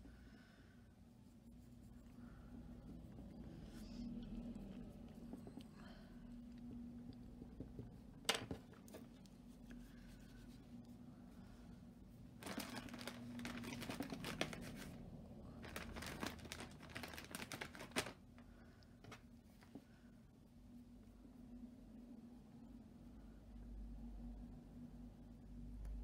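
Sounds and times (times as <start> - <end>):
paper towel crinkling: 12.4 - 18.2.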